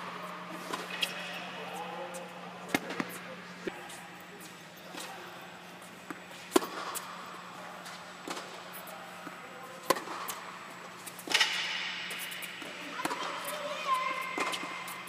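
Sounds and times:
tennis ball bouncing on hard court: 6.1s - 7.1s, 9.2s - 10.4s, 11.0s - 15.0s
tennis ball struck by racquets: 6.1s - 7.1s, 9.2s - 10.4s, 11.1s - 13.4s.

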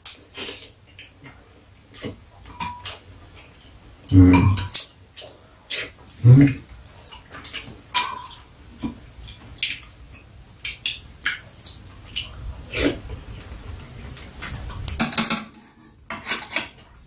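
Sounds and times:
utensils clinking on ceramic bowls: 2.4s - 3.0s
mouth noises of eating: 4.0s - 7.7s, 11.5s - 15.0s.

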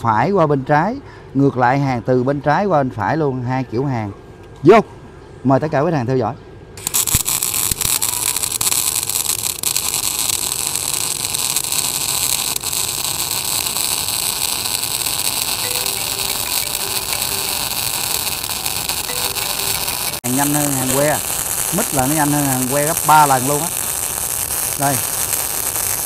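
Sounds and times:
welding arc hissing and crackling: 6.8s - 26.0s.

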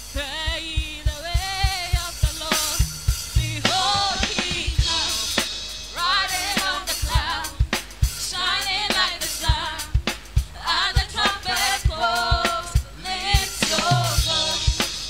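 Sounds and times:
band playing: 1.2s - 15.0s
voices singing: 3.4s - 15.0s.

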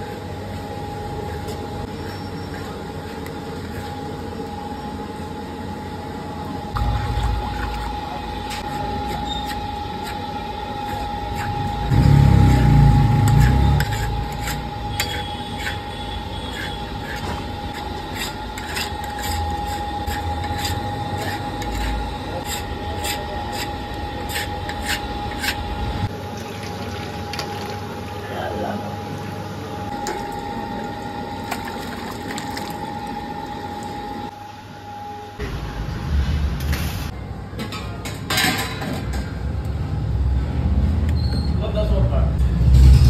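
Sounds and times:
metal scraper scraping iron pan: 8.6s - 25.7s
loud low rumble: 42.4s - 43.0s.

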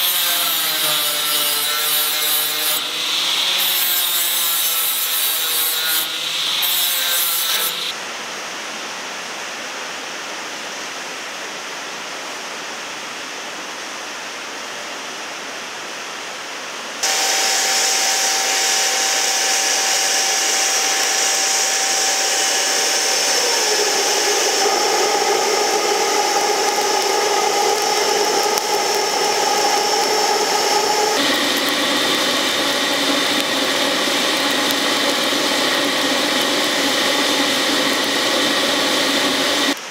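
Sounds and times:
angle grinder whining: 0.0s - 8.0s, 17.0s - 39.8s
forge blower humming: 17.0s - 39.8s.

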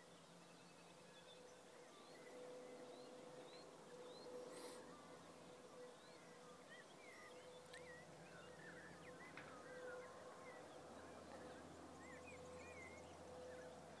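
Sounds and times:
faint steady hum: 0.0s - 14.0s
small birds chirping: 0.0s - 14.0s.

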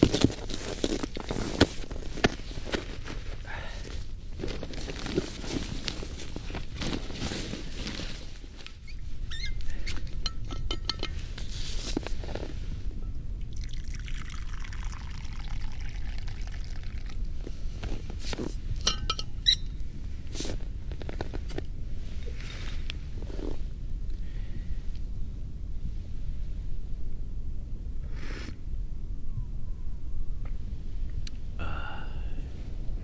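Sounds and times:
metal cap and cup clinks: 10.2s - 11.2s, 18.8s - 19.6s
drink pouring from flask: 13.5s - 17.2s.

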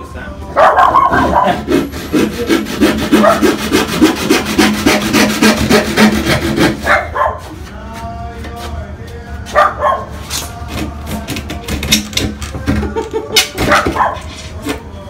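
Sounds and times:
hand saw cutting board: 1.0s - 7.6s.

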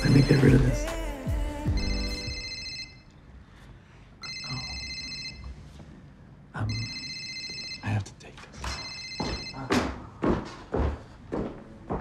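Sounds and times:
phone electronic ringtone: 0.0s - 0.8s, 1.6s - 3.1s, 4.2s - 5.6s, 6.7s - 7.9s, 8.8s - 9.6s.

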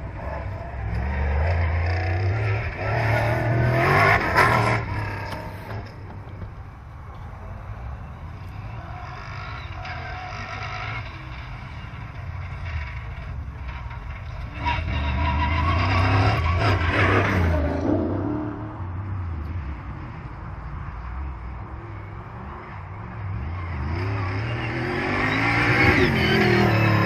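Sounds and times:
truck engine revving past: 23.3s - 27.0s.

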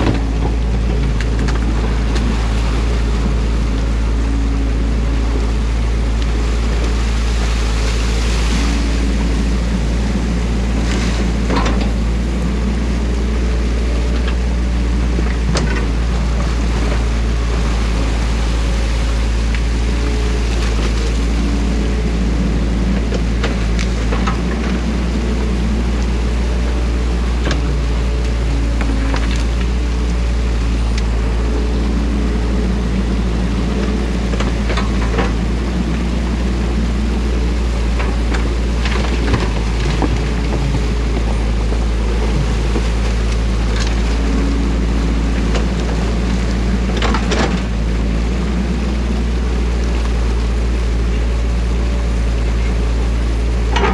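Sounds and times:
diesel engine running: 0.0s - 53.9s
water rushing: 0.0s - 53.9s.

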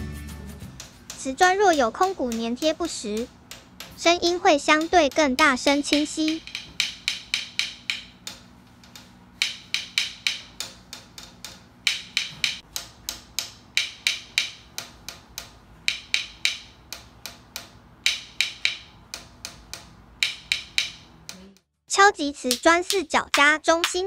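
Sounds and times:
metal rod tapping on tiles: 5.8s - 21.1s.

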